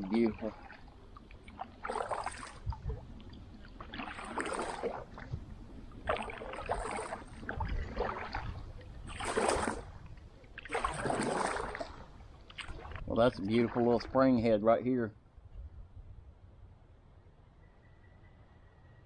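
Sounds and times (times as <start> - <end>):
kayak paddle splashing in water: 0.0 - 14.1.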